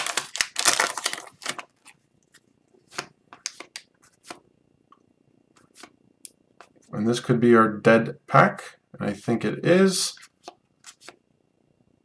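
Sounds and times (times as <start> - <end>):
foil wrapper crinkling: 0.0 - 2.4
cards flicking and sliding: 10.2 - 11.2.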